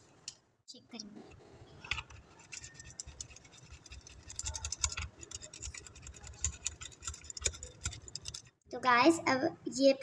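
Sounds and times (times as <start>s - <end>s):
metal utensil scraping plastic bowl: 1.6s - 8.6s.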